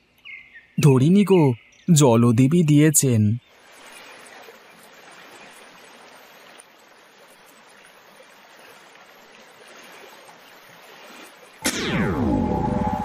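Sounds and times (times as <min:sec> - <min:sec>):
flowing river water: 0:02.7 - 0:13.0.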